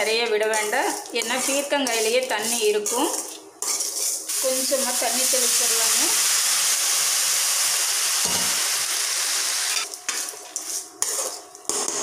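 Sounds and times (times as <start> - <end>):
vegetables sizzling in hot oil: 0.0 - 9.9
metal spatula scraping a pan: 1.2 - 4.3.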